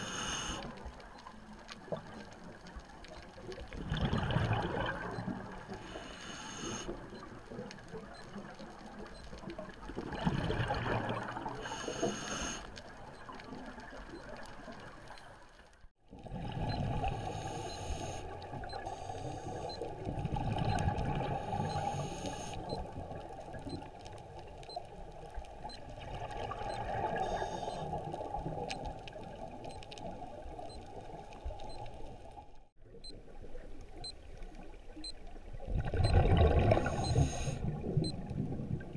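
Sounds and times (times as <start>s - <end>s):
steady water hiss: 0.0s - 1.0s, 4.4s - 7.2s, 11.1s - 13.4s, 16.3s - 32.4s, 36.3s - 38.0s
exhaled bubbles surging underwater: 3.3s - 5.8s, 7.0s - 11.8s, 16.1s - 17.6s, 19.6s - 24.5s, 25.2s - 31.7s, 34.2s - 38.9s.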